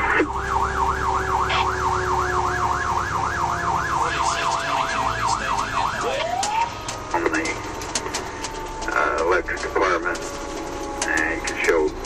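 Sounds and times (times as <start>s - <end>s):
siren yelping fast: 0.0s - 7.1s
lower siren tone falling: 0.0s - 7.8s
truck engine: 0.0s - 12.0s.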